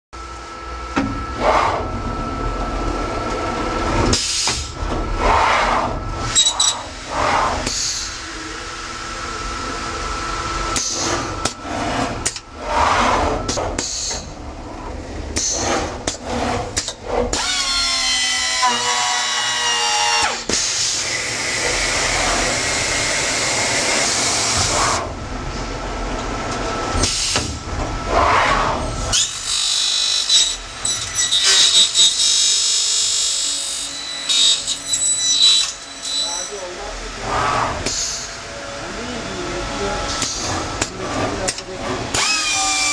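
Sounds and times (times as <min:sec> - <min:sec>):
cutter motor whine: 0:17.3 - 0:25.1, 0:42.1 - 0:42.9.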